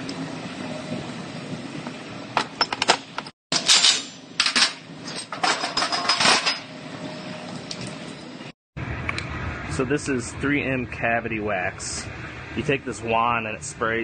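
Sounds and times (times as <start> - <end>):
metal parts clanking on steel: 2.4 - 6.7.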